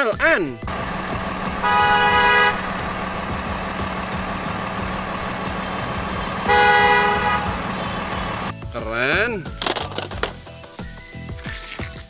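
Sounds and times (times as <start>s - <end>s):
engine hum: 0.6s - 8.5s
car horn honking: 0.7s - 8.5s.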